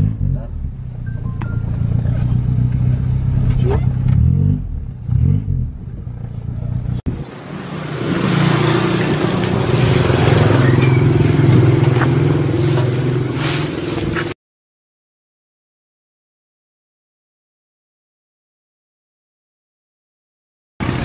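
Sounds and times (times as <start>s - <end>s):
vehicle engine running: 0.0s - 14.4s.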